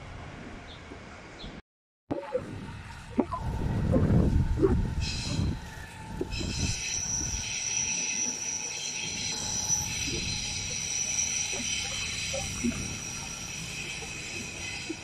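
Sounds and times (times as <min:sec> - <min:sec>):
train wheels squealing on rails: 0:04.9 - 0:15.0.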